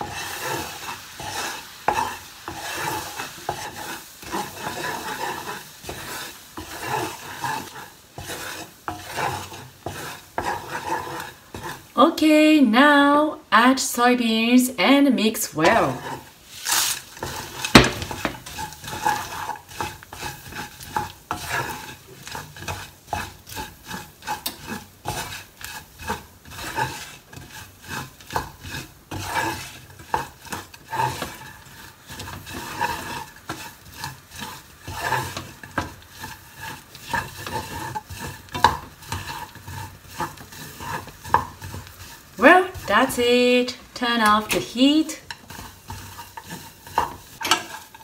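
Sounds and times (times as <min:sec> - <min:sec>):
spatula scraping beans in pan: 0:00.0 - 0:12.4, 0:15.2 - 0:48.0
syrup sizzling: 0:00.0 - 0:14.1, 0:15.2 - 0:48.0
beans clattering into pan: 0:16.5 - 0:21.4.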